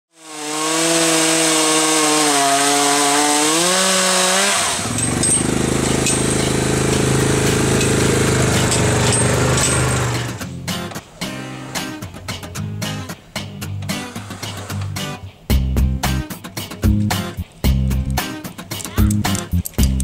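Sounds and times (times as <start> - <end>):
chainsaw running under load: 0.1 - 10.4.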